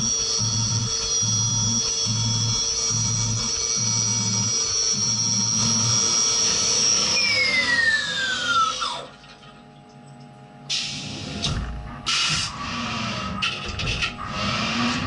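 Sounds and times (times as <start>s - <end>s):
milling spindle whine: 0.0s - 9.9s, 11.2s - 15.0s.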